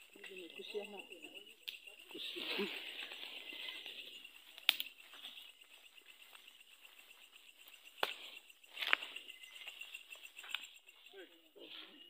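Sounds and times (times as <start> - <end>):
night insects chirring: 0.0 - 12.0
sharp clicks: 4.5 - 5.0.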